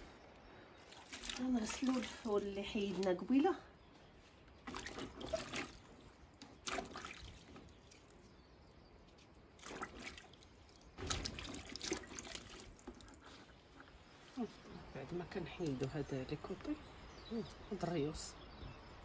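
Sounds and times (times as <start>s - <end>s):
bean pods sloshing in water: 0.9s - 3.5s, 4.5s - 8.4s, 9.5s - 13.5s.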